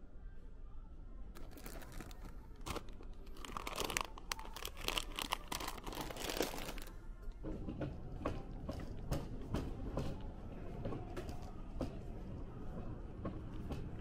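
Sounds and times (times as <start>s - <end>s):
plastic wrapper crinkling: 1.4s - 7.0s.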